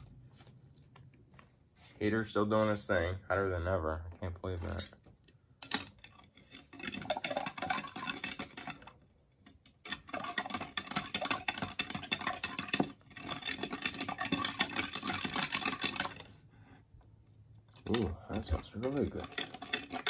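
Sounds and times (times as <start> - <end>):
spoon rattling against glass: 5.6 - 9.0, 9.8 - 16.4, 17.7 - 20.0.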